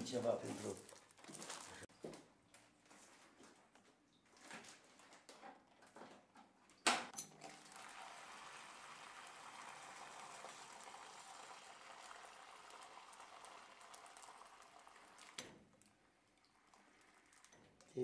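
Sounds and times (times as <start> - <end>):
juice pouring into pouch: 7.4 - 18.0.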